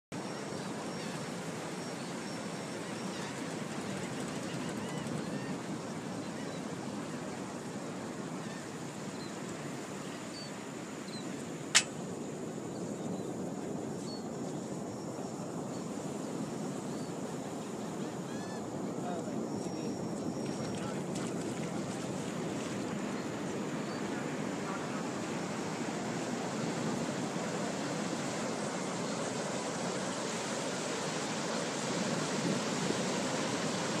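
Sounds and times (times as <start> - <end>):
rushing outdoor noise: 0.2 - 34.0
sharp click: 11.7 - 12.0
surf rushing: 18.9 - 34.0.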